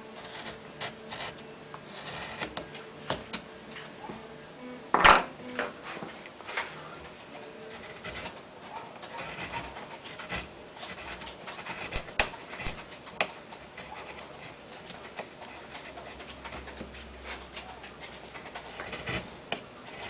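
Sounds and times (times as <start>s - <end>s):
chisel scraping wood: 0.1s - 3.3s, 7.7s - 20.0s.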